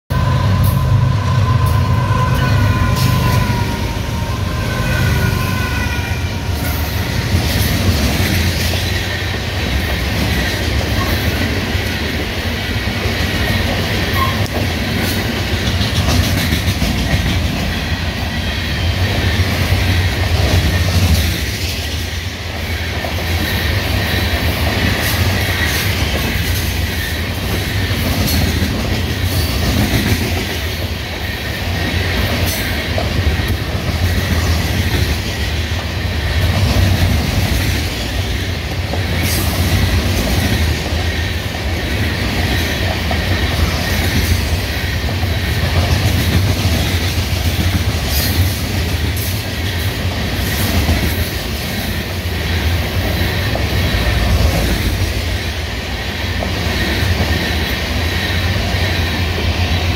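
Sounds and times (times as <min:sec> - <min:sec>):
locomotive horn chord: 0:00.1 - 0:03.5
freight train rumbling past: 0:00.1 - 0:59.9
train wheels clicking: 0:05.0 - 0:59.9.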